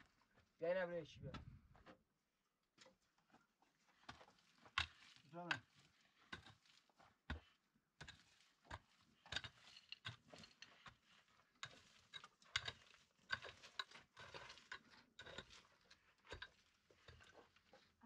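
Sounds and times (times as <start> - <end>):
digging tool scraping stony ground: 4.0 - 18.0.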